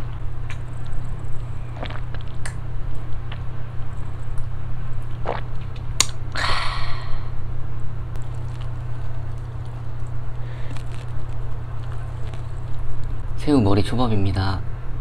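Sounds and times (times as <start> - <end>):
steady low hum: 0.0 - 15.0
breathy exhale: 6.4 - 7.4, 10.4 - 10.8.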